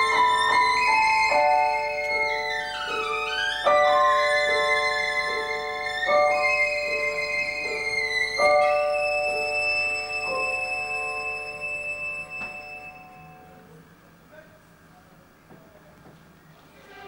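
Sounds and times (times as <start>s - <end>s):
violin playing high line: 0.0s - 13.6s
piano chords: 0.0s - 13.9s.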